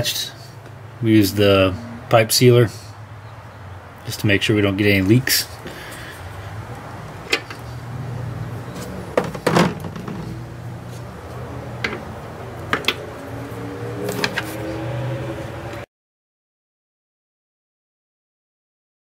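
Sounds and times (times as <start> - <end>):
low steady hum: 1.0 - 3.3.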